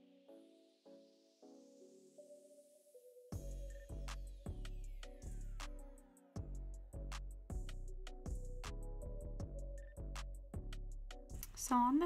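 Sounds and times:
heavy bass beat: 6.4s - 11.6s.

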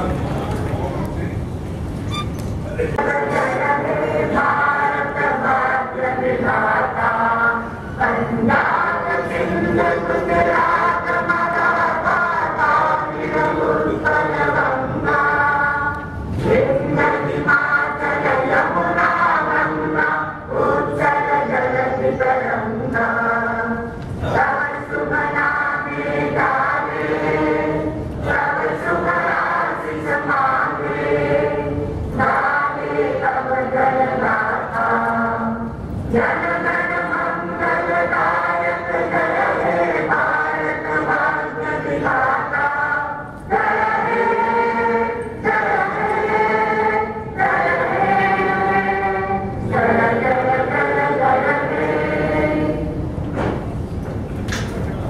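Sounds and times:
group singing in unison: 3.0s - 53.7s
brief knock: 53.3s - 53.7s.

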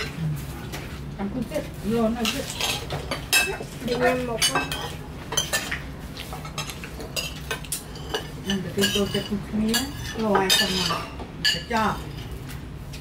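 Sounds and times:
spoons clinking on plates: 2.2s - 12.4s.

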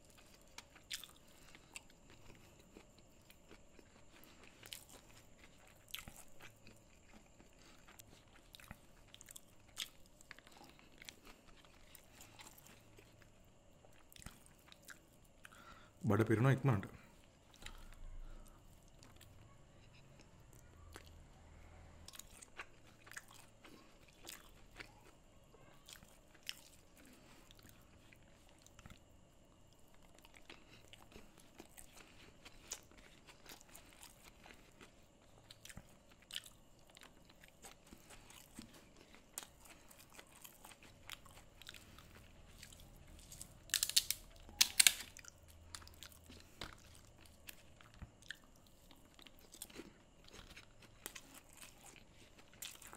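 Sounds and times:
loud crunches of fried food: 37.1s - 48.4s
soft clicks of mixing food by hand: 45.6s - 52.9s.

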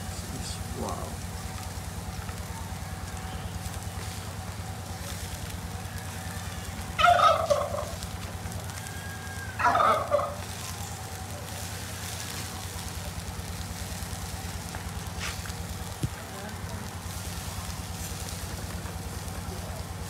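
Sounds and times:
fowl calling loudly: 5.9s - 8.0s, 8.7s - 10.6s.

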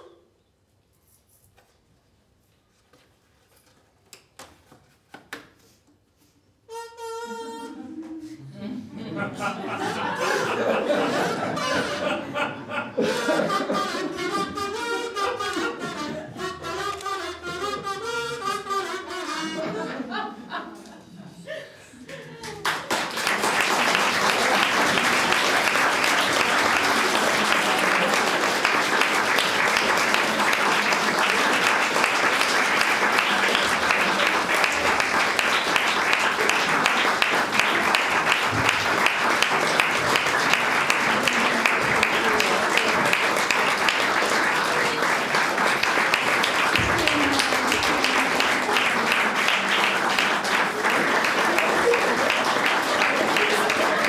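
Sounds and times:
audience applauding: 9.2s - 16.0s, 22.1s - 54.0s.

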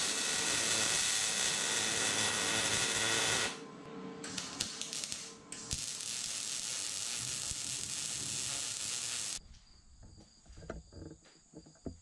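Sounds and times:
welding arc crackling: 0.0s - 3.6s, 4.2s - 9.4s.

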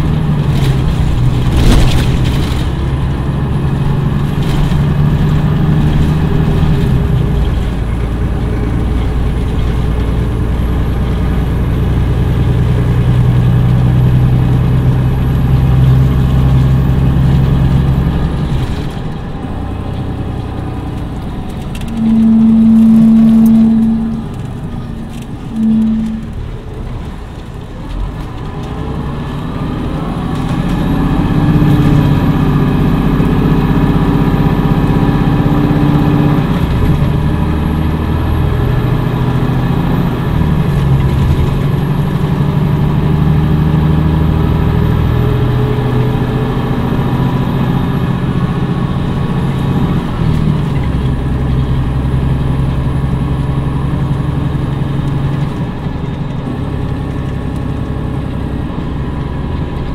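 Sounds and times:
bus diesel engine shifting gears: 0.0s - 59.9s
faint high whine: 21.8s - 26.6s.

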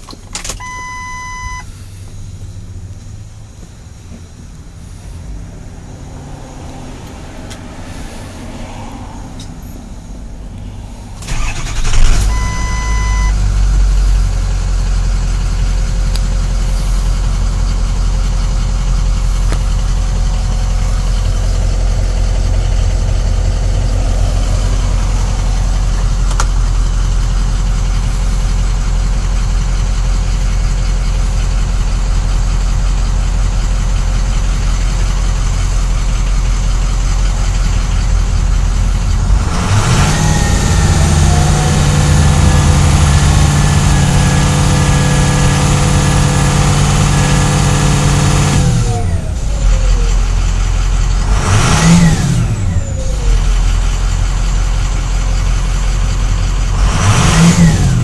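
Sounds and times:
diesel engine starting and idling: 0.0s - 58.0s
short electronic beep: 0.6s - 1.7s, 11.9s - 13.4s.

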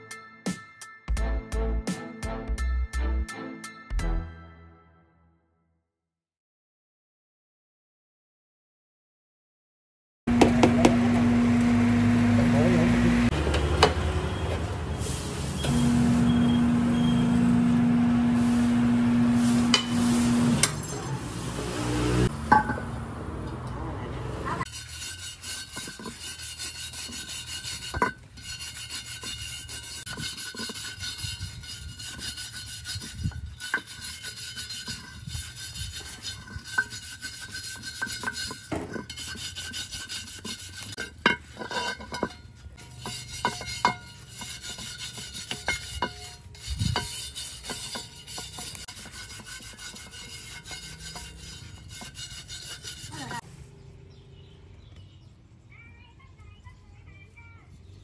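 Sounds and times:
hand rasping on workpiece: 24.7s - 53.4s.

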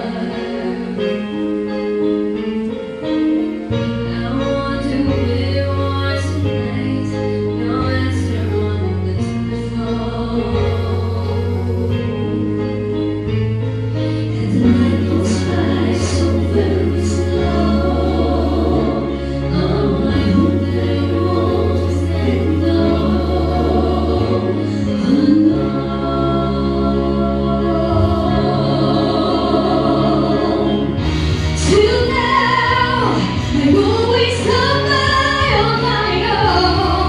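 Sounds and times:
people singing pop ballad in harmony: 0.0s - 2.6s, 3.9s - 37.0s
low bass backing track: 3.2s - 37.0s.

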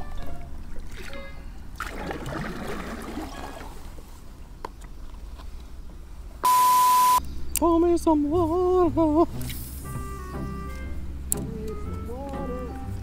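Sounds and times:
paddle splashing in water: 0.0s - 5.0s.

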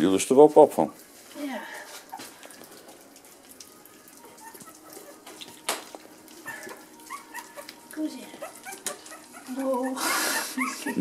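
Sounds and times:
puppies lapping from metal dish: 1.8s - 10.0s.

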